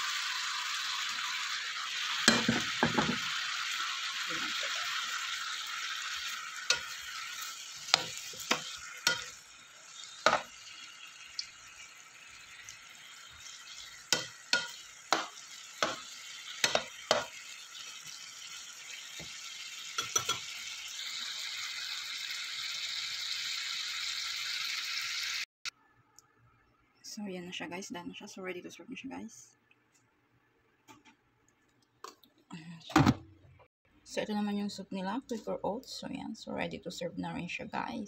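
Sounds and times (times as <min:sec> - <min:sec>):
food sizzling in sauce: 0:00.0 - 0:25.5.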